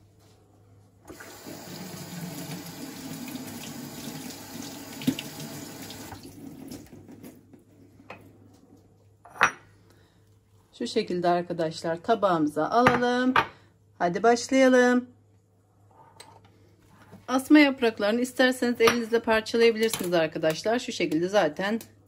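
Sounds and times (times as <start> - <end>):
tap running into sink: 3.3 - 6.9.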